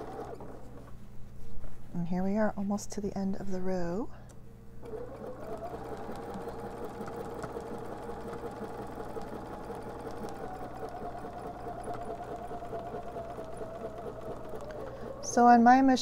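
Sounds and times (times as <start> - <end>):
sewing machine running: 0.0 - 0.7, 4.8 - 15.6.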